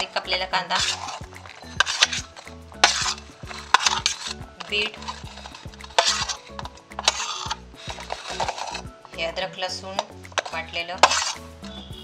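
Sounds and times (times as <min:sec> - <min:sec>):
metal spoon scraping steel plate: 0:00.0 - 0:09.4, 0:10.0 - 0:11.6.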